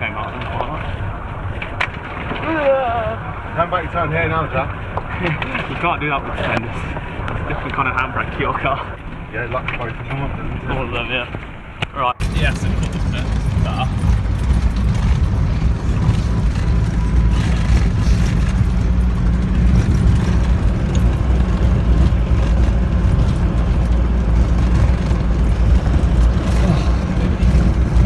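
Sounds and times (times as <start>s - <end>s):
vehicle engine and tyres rumbling: 0.0s - 28.0s.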